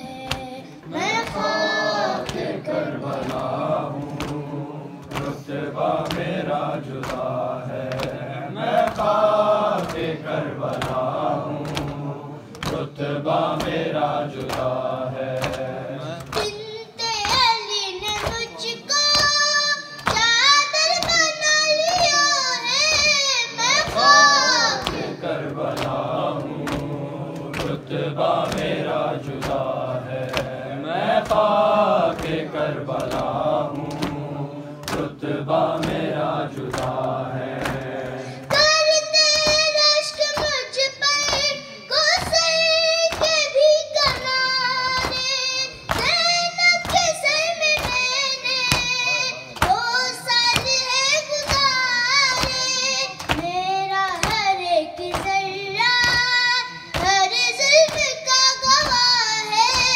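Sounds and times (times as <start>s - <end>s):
boy singing alone: 0.0s - 3.7s, 16.0s - 25.3s, 38.4s - 59.9s
men chanting in unison: 0.9s - 16.4s, 23.9s - 38.5s.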